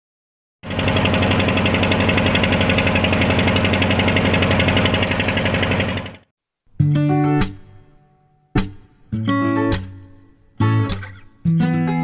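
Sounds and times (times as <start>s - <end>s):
boat engine chugging: 0.6s - 6.2s.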